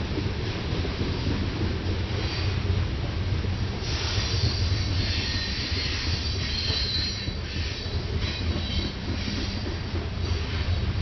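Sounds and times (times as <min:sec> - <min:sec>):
train wheels rumbling on rail: 0:00.0 - 0:11.0
high wheel squeal: 0:04.3 - 0:09.3.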